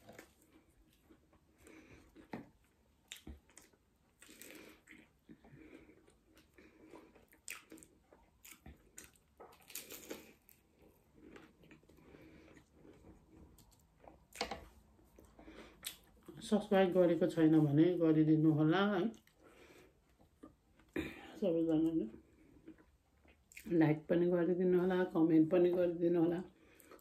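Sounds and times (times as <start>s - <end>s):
person chewing crunchy pastry: 0.0s - 16.4s, 22.1s - 23.7s, 26.6s - 27.0s.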